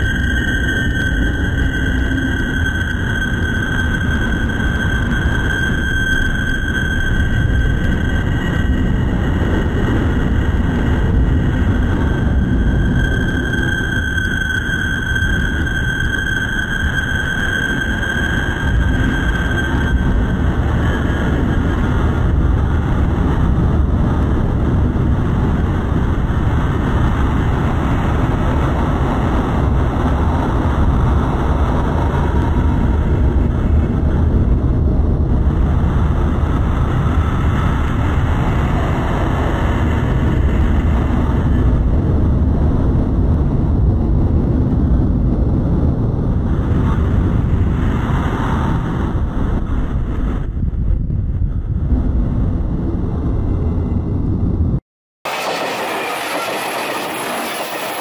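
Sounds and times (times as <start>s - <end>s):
electric train passing: 0.0s - 23.4s, 55.3s - 58.0s.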